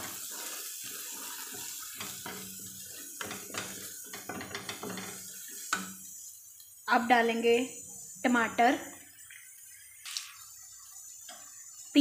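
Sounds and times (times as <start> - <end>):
wooden spatula scraping a pan: 0.0 - 6.0
food sizzling in hot oil: 0.0 - 12.0.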